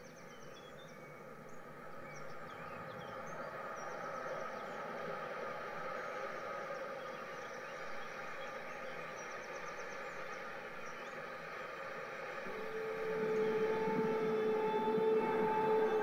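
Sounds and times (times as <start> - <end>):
steady whine: 2.9 - 16.0
model train wheels rumbling: 12.3 - 16.0.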